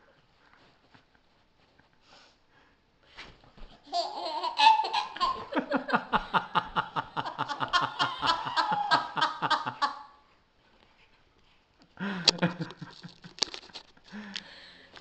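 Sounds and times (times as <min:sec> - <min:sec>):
baby laughing: 0:03.8 - 0:05.7, 0:07.2 - 0:10.0
woman laughing: 0:04.6 - 0:10.1.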